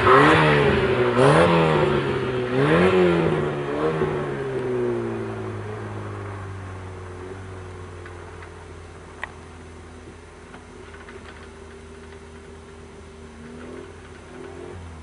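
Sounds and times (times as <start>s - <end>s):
rally car engine passing: 0.0s - 7.5s.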